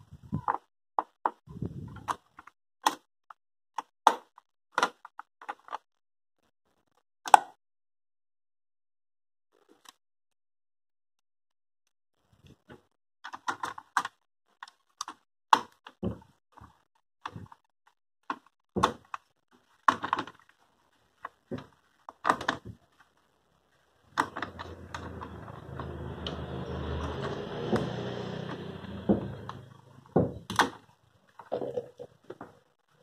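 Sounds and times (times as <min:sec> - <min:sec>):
plastic clicks and knocks: 0:21.5 - 0:22.8, 0:28.5 - 0:30.8.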